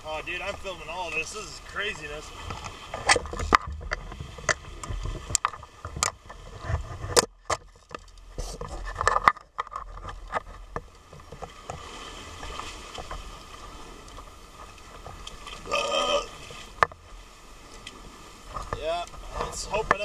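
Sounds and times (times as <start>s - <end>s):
surf washing over rocks underwater: 0.0s - 20.0s.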